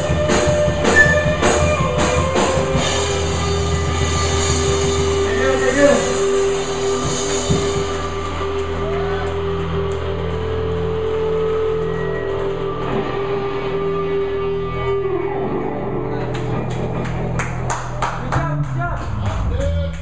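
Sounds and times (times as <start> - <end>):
rock band playing: 0.0 - 20.0.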